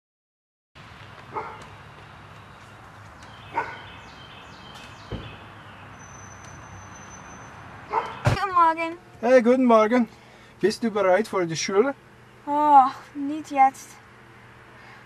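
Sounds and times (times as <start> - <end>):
dog barking: 1.3 - 1.6, 3.5 - 3.9, 7.9 - 8.3
low thump: 5.1 - 5.4
low background hum: 7.6 - 15.0.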